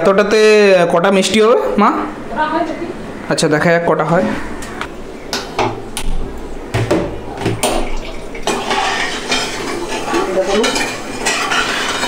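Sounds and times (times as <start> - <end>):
spoon stirring and scraping pan: 8.3 - 12.0.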